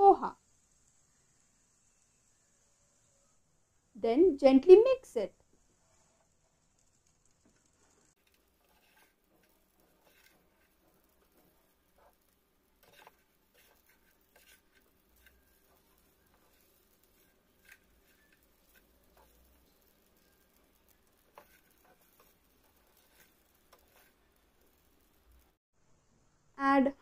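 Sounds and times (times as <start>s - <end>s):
spatula scraping frying pan: 5.8s - 25.6s.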